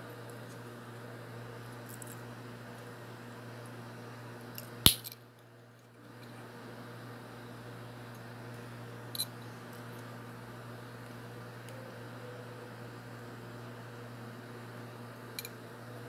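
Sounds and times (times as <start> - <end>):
metal locket snapping shut: 4.9 - 5.2.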